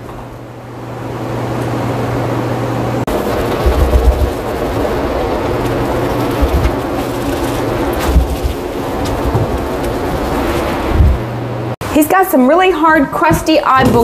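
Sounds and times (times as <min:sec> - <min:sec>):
low hum: 0:00.0 - 0:11.8
water spraying from hose: 0:03.1 - 0:11.0.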